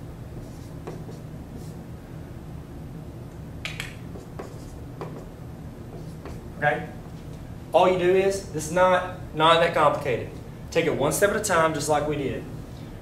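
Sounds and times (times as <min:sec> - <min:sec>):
steady low hum: 0:00.0 - 0:13.0
marker squeaking on whiteboard: 0:04.1 - 0:05.2.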